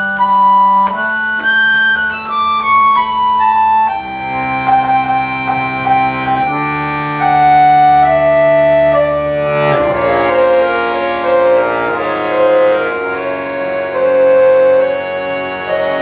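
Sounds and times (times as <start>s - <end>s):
accordions playing: 0.0s - 16.0s.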